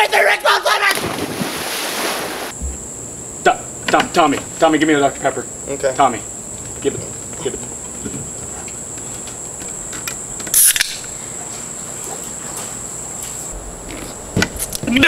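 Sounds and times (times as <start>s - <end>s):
soda can opening hiss: 10.4s - 11.1s.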